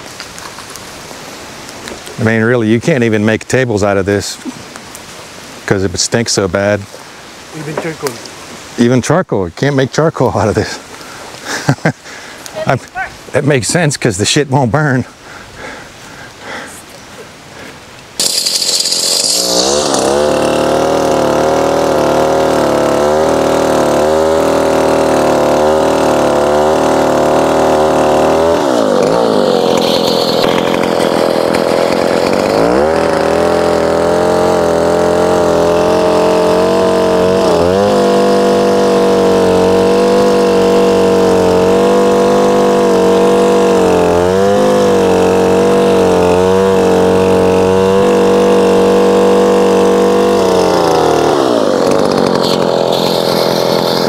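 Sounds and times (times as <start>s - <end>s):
chainsaw cutting logs: 10.0s - 14.1s, 17.6s - 54.0s.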